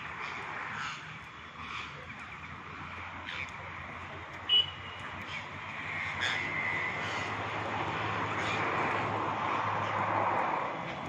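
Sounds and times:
steady rushing noise: 0.0s - 11.0s
parakeets calling: 5.2s - 7.4s.

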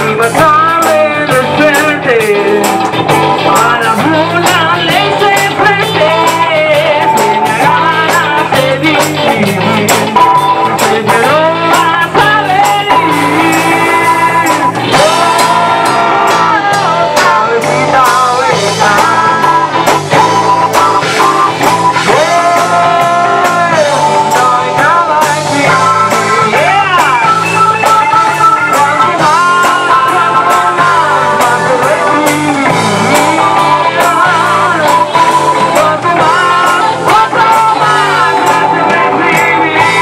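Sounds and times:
rock band playing: 0.0s - 40.0s
woman singing: 10.8s - 19.7s, 22.0s - 40.0s.

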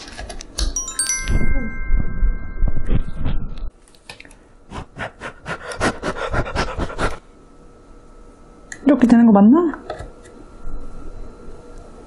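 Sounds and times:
chime sound effect: 0.8s - 3.7s.

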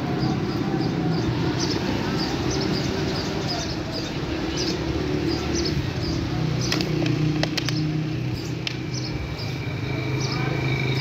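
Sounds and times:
traffic engine hum: 0.0s - 11.0s
bird chirps: 7.6s - 11.0s.

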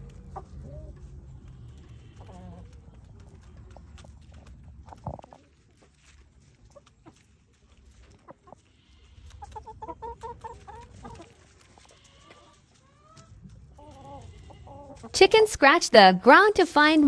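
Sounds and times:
hens clucking: 0.0s - 15.8s.

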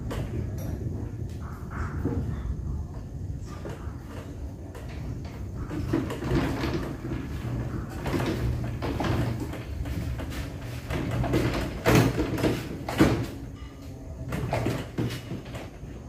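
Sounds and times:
speaker cabinet sliding on concrete: 4.8s - 13.5s.

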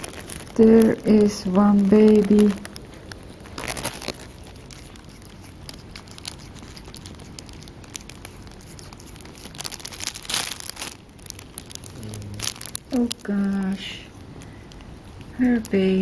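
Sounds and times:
plastic sheet crinkling and rustling: 0.0s - 15.8s.

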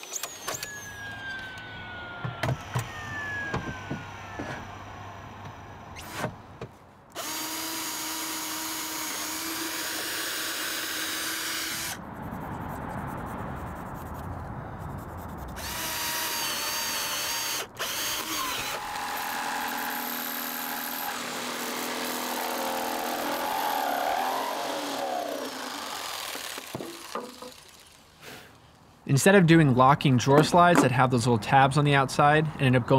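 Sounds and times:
jigsaw cutting plywood: 0.0s - 6.4s, 7.2s - 12.0s, 15.6s - 28.0s.

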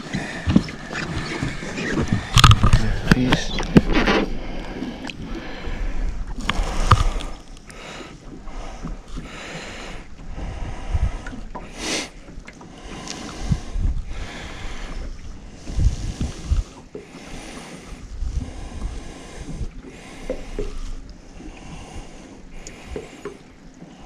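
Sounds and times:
wind buffeting microphone: 0.0s - 7.4s, 10.0s - 11.7s, 13.2s - 19.8s
water lapping against boat: 0.0s - 24.0s.

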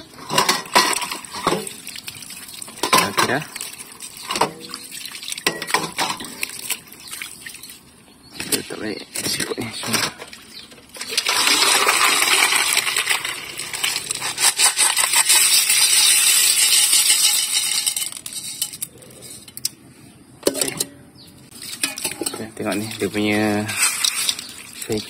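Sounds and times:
snail shells clattering into metal colander: 11.0s - 19.7s, 21.6s - 25.0s.

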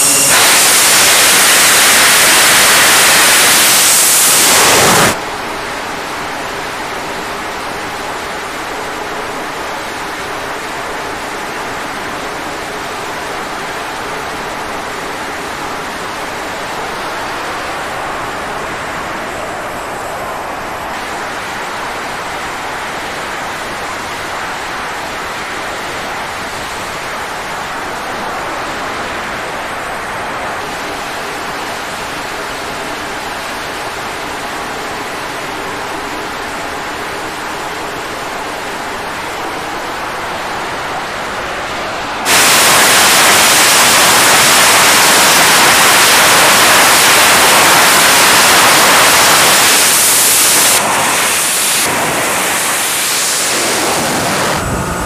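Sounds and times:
jet engines roaring: 0.0s - 5.2s, 42.2s - 55.0s
jet running up to full power: 0.0s - 5.2s, 42.2s - 55.0s.

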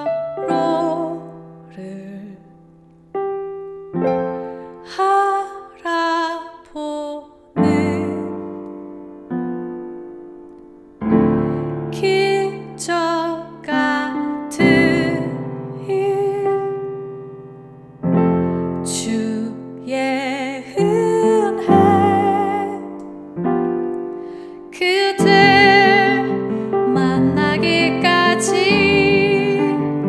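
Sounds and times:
person singing: 0.0s - 2.6s, 4.6s - 8.7s, 11.9s - 16.9s, 18.8s - 23.1s, 24.6s - 30.0s
piano chords: 0.0s - 30.0s.

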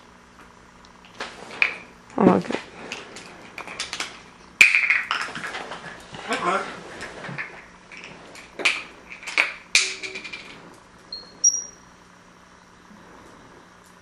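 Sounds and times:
parrot high whistles: 11.2s - 11.8s.

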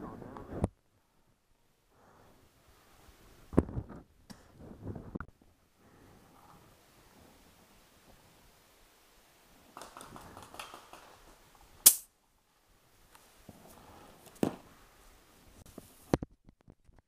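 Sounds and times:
rustling and small clicks: 9.7s - 12.0s
sharp pop: 11.8s - 12.1s.

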